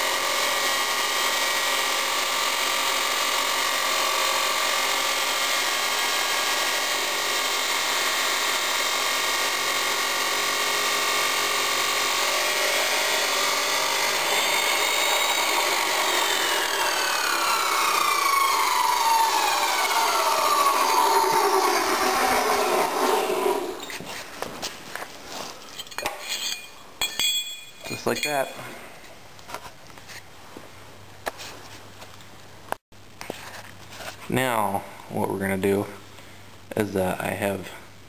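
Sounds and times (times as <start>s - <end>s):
chop saw cutting steel: 0.0s - 24.0s.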